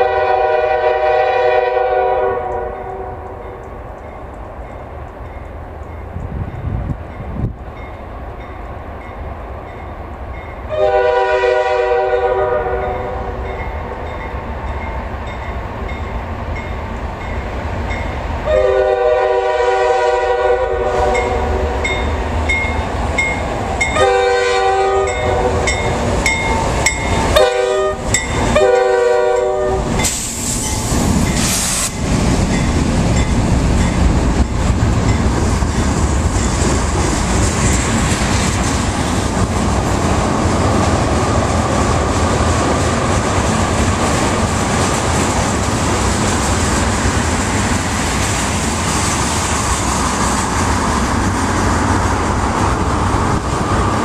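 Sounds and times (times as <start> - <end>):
train air horn blasts: 0.0 - 3.6, 10.7 - 13.4, 18.5 - 22.0, 24.0 - 25.8, 27.2 - 30.3
locomotive engines rumbling: 0.0 - 54.0.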